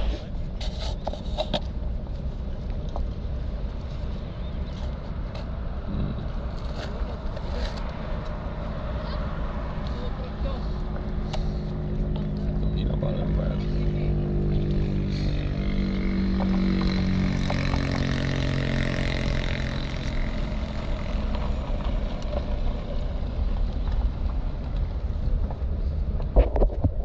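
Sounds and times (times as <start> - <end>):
car engine running inside cabin: 5.7 - 26.2.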